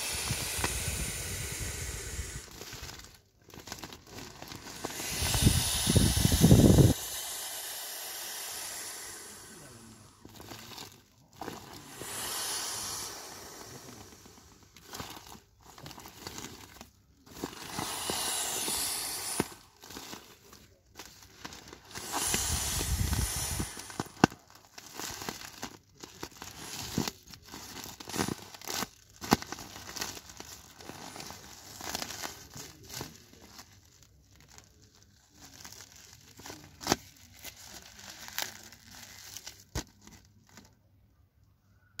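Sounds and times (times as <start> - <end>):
air hissing out: 0.0 - 3.2, 4.1 - 24.5
plastic crinkling: 0.0 - 41.0.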